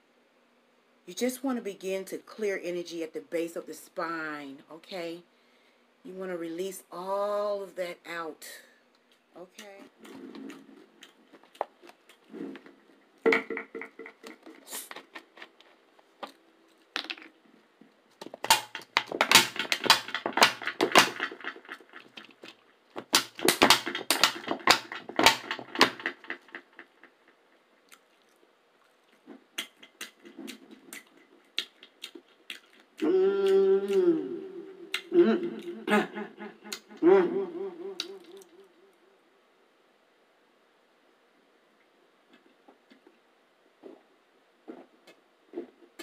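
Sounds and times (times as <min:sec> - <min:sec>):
plastic bottle crinkling: 0:10.3 - 0:26.9.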